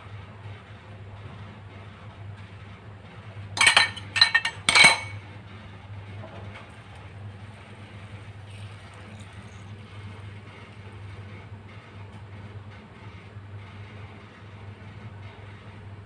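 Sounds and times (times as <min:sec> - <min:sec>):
metal pot clanking on stove: 0:03.6 - 0:05.2.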